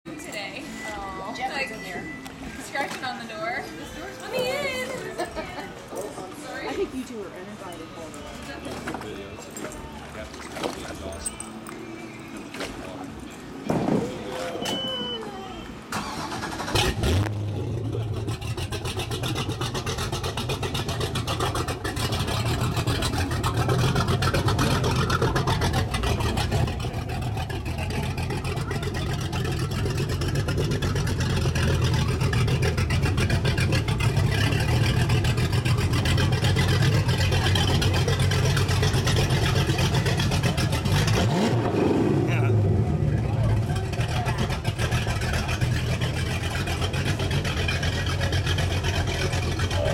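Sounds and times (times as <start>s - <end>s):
boat engine starting and idling: 14.2s - 49.9s.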